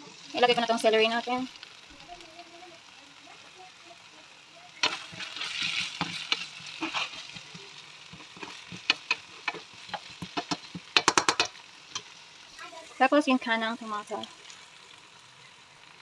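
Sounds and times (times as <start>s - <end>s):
vegetables sizzling in a pan: 0.0s - 16.0s
spatula scraping a pan: 4.8s - 11.1s.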